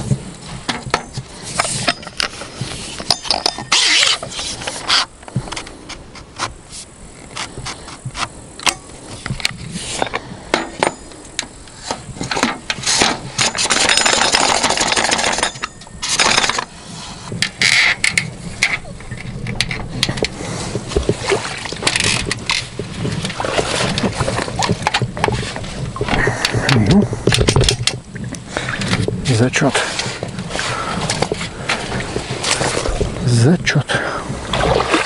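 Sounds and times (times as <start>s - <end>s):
fishing gear knocking and clattering: 0.0s - 33.4s
rushing scraping noise: 1.4s - 5.1s.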